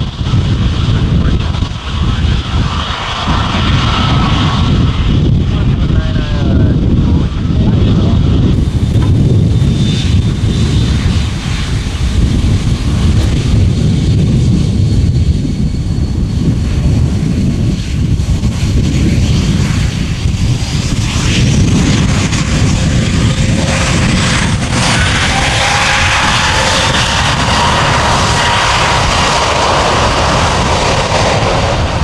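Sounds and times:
jet engine whine rising: 0:00.0 - 0:32.0
jet engines rumbling: 0:00.0 - 0:32.0.

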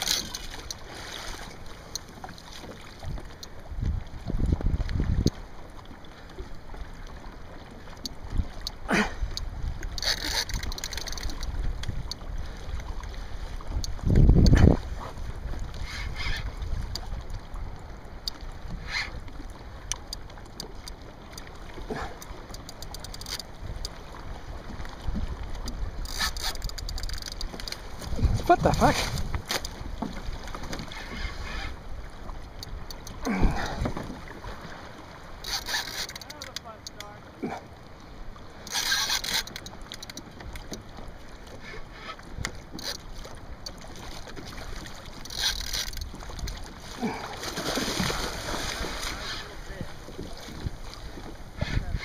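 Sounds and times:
light ticks: 0:00.0 - 0:00.8, 0:01.5 - 0:04.0, 0:04.9 - 0:05.4, 0:07.9 - 0:12.3, 0:13.7 - 0:14.6, 0:16.9 - 0:17.4, 0:18.0 - 0:18.5, 0:19.4 - 0:21.5, 0:22.1 - 0:24.0, 0:25.5 - 0:28.1, 0:29.2 - 0:34.1, 0:35.4 - 0:37.1, 0:38.6 - 0:41.7, 0:42.4 - 0:46.7
water lapping against kayak hull: 0:00.0 - 0:52.0
wind rumble on microphone: 0:03.0 - 0:05.4, 0:11.3 - 0:18.0, 0:27.8 - 0:30.1, 0:46.0 - 0:52.0
light clicks: 0:38.6 - 0:40.8.

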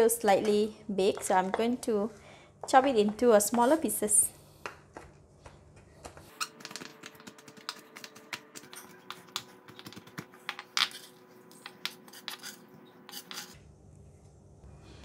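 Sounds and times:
knife chopping on wooden board: 0:06.6 - 0:13.6.

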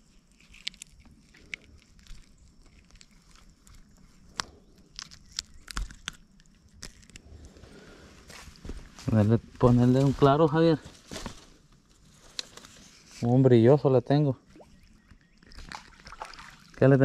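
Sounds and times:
hands handling fish clicks rustles: 0:00.2 - 0:07.2.

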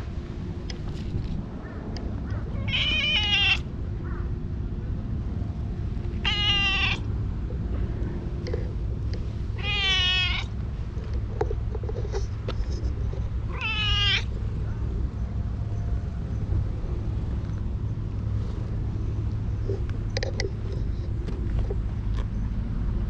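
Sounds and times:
cat meowing: 0:02.4 - 0:03.7, 0:06.2 - 0:07.1, 0:09.6 - 0:10.5, 0:13.5 - 0:14.3.

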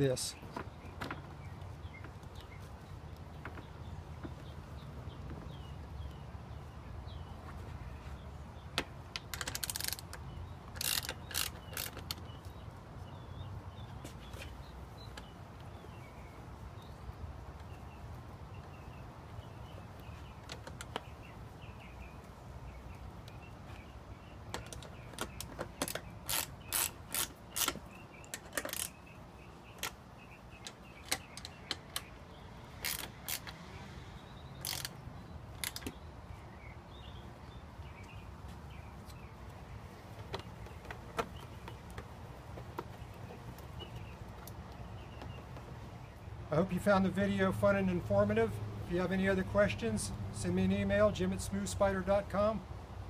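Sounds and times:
ratcheting handles clicking: 0:08.8 - 0:12.4, 0:24.5 - 0:29.0, 0:32.8 - 0:33.6, 0:34.6 - 0:36.0.

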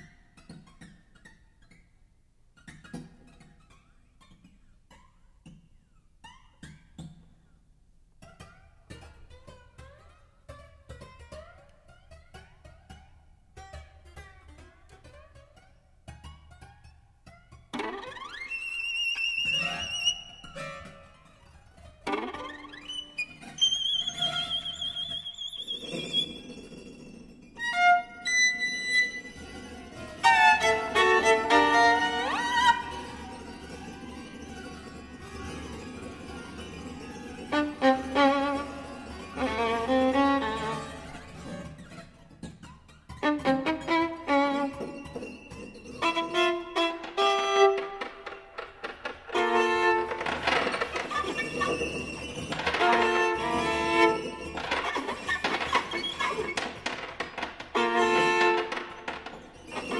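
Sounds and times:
background music melody: 0:27.2 - 0:51.4.

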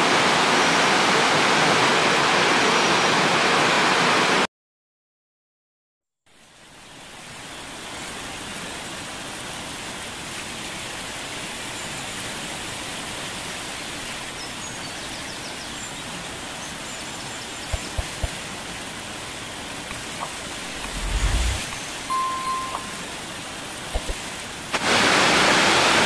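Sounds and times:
waterfall rushing: 0:15.8 - 0:26.0.

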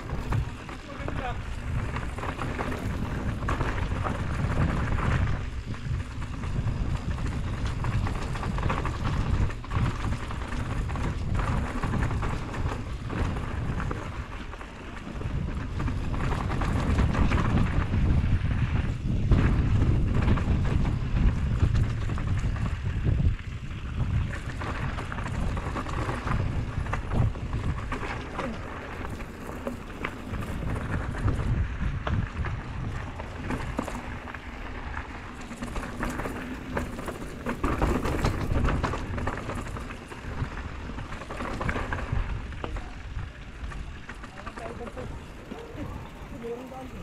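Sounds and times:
bike rattling: 0:00.0 - 0:47.0
wind rumble on microphone: 0:00.0 - 0:47.0.

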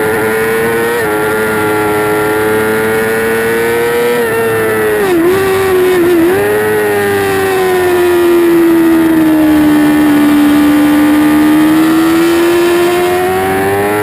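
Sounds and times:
motorcycle engine racing: 0:00.0 - 0:14.0.

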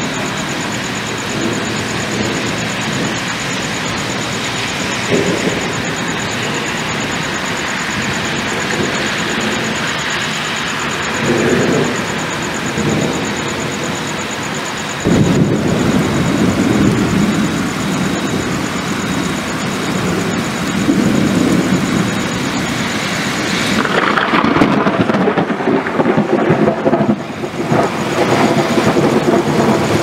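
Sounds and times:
rain hissing: 0:00.0 - 0:30.0
thunder rumbling: 0:00.0 - 0:30.0.

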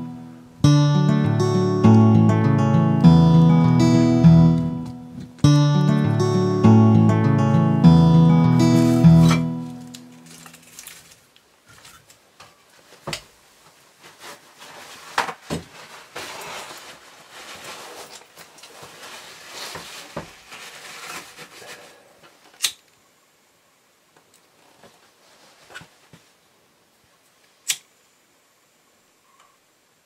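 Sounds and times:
rustling: 0:08.7 - 0:22.6, 0:24.5 - 0:26.4.

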